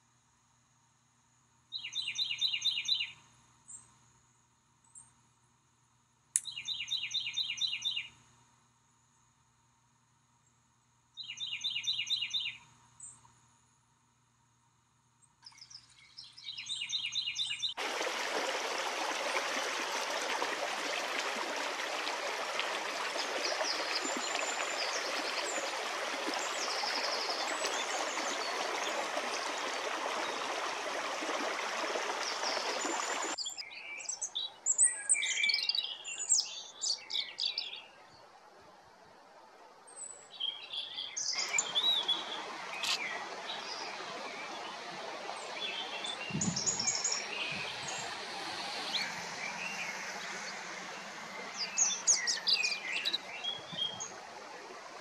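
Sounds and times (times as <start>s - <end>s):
songbirds chirping: 6.4s - 8.2s, 11.2s - 13.4s, 15.2s - 38.4s, 39.8s - 55.0s
stream running water: 15.4s - 34.5s, 35.2s - 55.0s.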